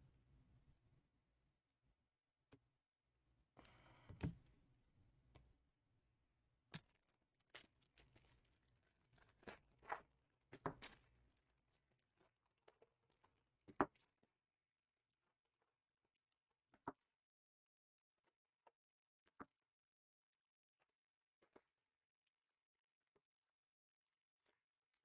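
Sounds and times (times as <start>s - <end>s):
faint crinkles and taps: 6.7s - 14.4s.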